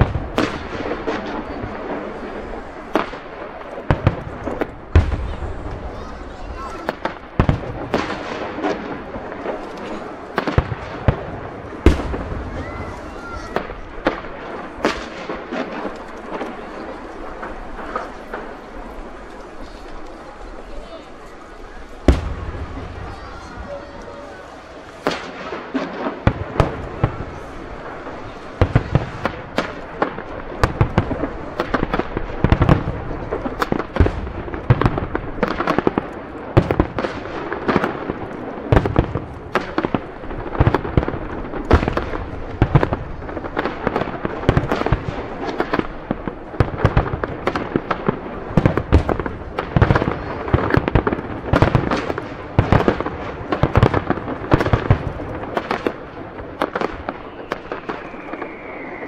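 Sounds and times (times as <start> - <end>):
fireworks booming: 0.0 - 59.0
fireworks crackling: 0.0 - 59.0.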